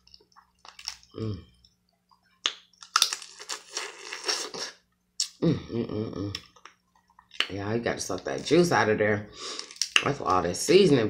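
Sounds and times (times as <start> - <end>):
crab shell cracking and crunching: 0.0 - 1.2, 2.4 - 5.4.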